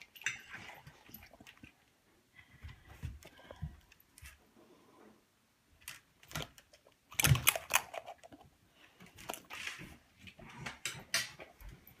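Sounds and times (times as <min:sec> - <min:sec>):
dogs eating off metal fork: 0:00.0 - 0:01.9, 0:07.1 - 0:08.5.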